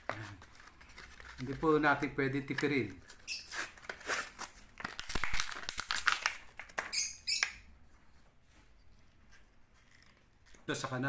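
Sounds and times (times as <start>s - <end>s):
blister pack crinkling: 3.8s - 6.9s.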